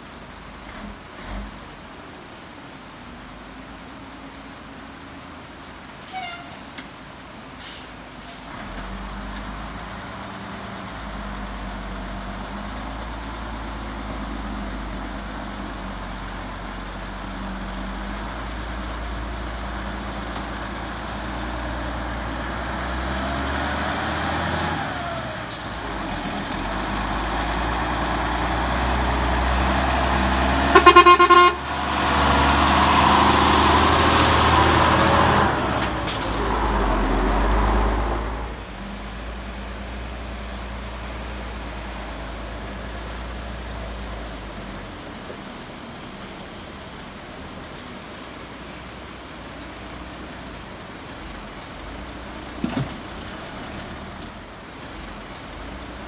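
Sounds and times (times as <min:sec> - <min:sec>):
diesel truck engine passing: 0:07.6 - 0:56.0
truck horn blast: 0:30.6 - 0:31.8.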